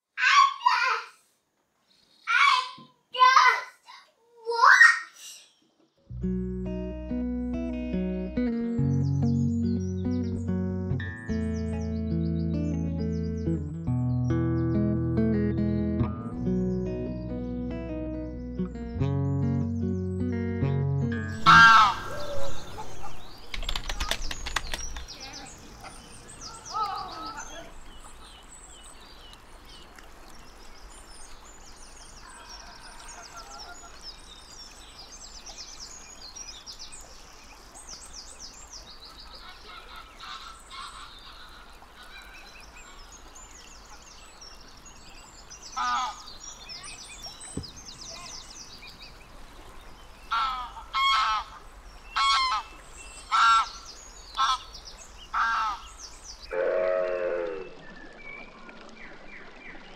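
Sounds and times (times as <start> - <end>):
small birds chirping: 0.2 - 6.2, 8.4 - 15.5, 21.3 - 56.5
geese honking: 21.3 - 23.2, 45.8 - 46.3, 50.3 - 51.6, 52.2 - 53.8, 54.4 - 54.7, 55.4 - 55.8.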